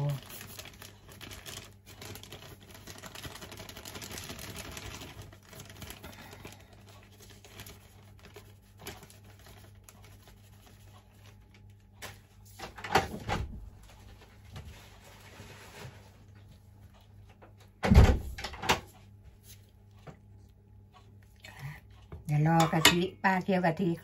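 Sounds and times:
plastic bag crinkling: 0.0s - 12.2s.

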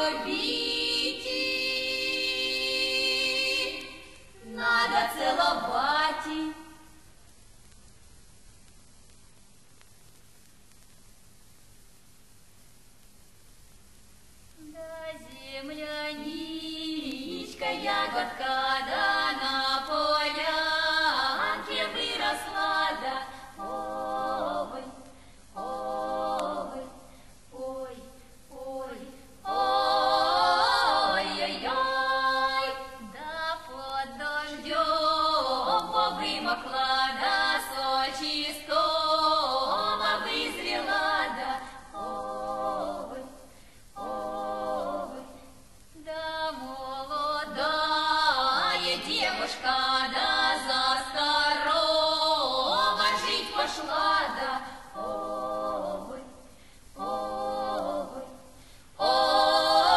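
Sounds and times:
women singing a cappella: 0.0s - 7.0s, 14.6s - 59.9s.

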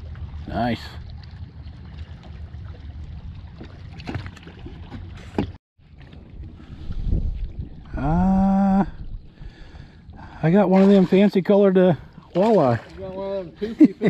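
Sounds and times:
boat engine low rumble: 0.0s - 14.0s
wind on microphone: 5.9s - 10.3s.

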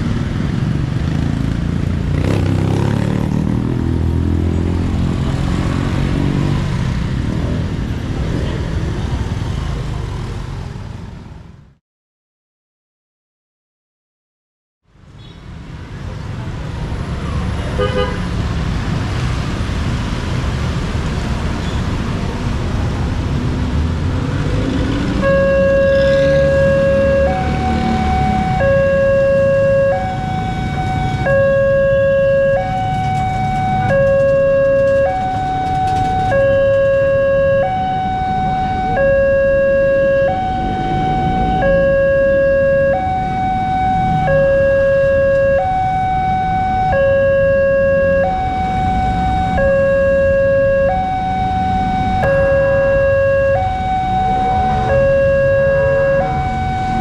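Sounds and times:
motorcycle traffic: 0.0s - 11.8s, 14.9s - 57.0s
two-tone crossing warning alarm: 24.4s - 57.0s.

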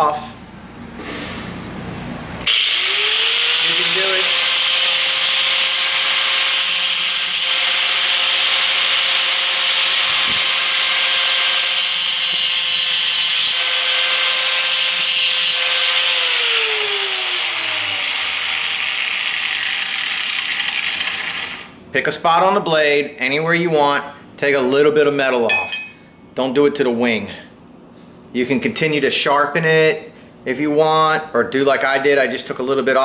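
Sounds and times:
angle grinder grinding metal: 2.4s - 21.7s.

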